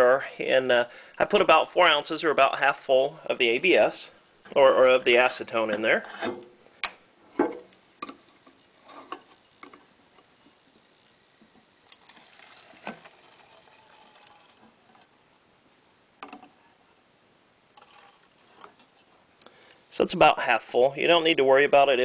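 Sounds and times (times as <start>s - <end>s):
faint liquid trickle: 11.7s - 15.2s.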